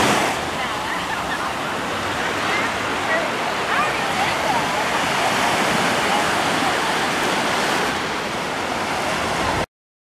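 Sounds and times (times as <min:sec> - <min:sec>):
surf washing onto beach: 0:00.0 - 0:09.7.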